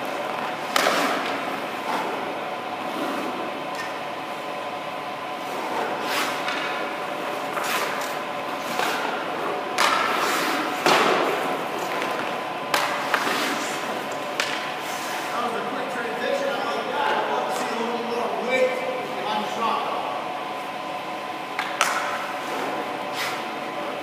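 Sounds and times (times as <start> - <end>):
skate blades scraping ice: 0.1 - 3.4, 5.4 - 15.3, 21.6 - 23.6.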